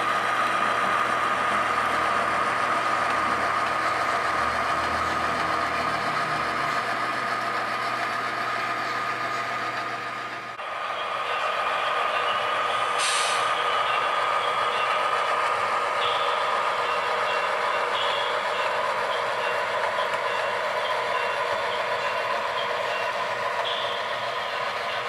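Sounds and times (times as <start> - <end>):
model locomotive engine drone: 0.0 - 25.0
short hiss: 13.0 - 13.5.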